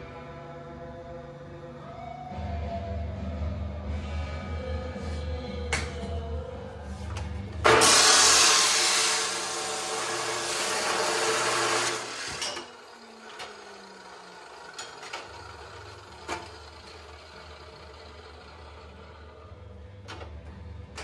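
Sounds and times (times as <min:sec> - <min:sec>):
chop saw cutting steel: 0:07.7 - 0:14.2
motor winding down: 0:07.8 - 0:19.7.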